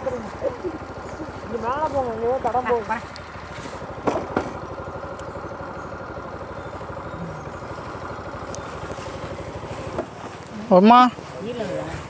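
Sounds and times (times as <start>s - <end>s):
motorcycle engine idling: 0.0s - 12.0s
sharp clicks: 3.1s - 3.3s, 4.0s - 5.4s, 8.4s - 9.0s.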